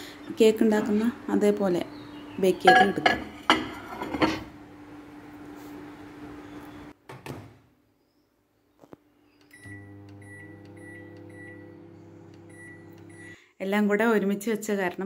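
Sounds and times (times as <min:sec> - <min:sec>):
microwave clicks: 0:09.4 - 0:13.2
microwave oven humming: 0:09.5 - 0:13.4.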